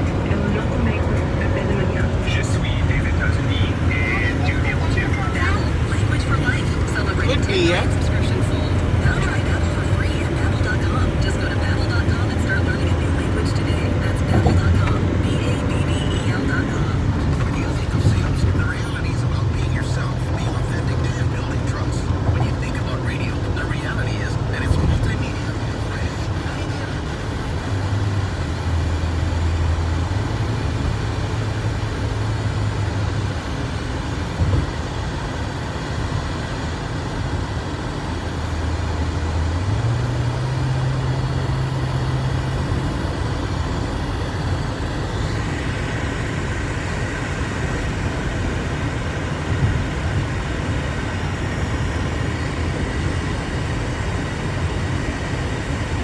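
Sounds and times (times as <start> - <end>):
low engine hum: 0.0 - 56.0
road and tyre noise: 0.0 - 56.0.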